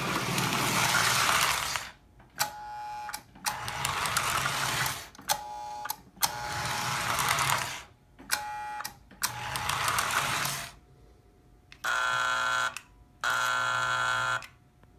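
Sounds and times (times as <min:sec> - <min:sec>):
toy train motor whirring: 0:03.5 - 0:05.2, 0:06.2 - 0:07.9, 0:09.2 - 0:10.8.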